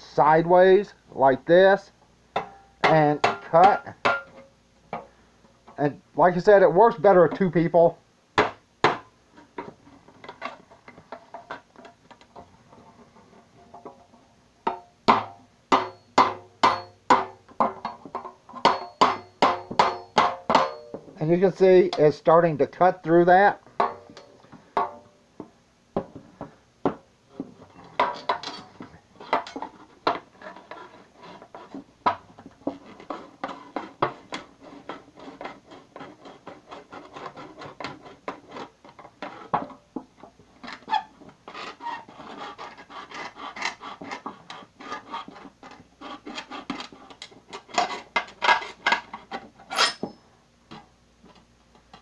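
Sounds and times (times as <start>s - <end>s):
knife scraping sheet metal: 15.7s - 18.0s, 27.3s - 31.9s, 32.6s - 39.6s, 40.6s - 50.2s.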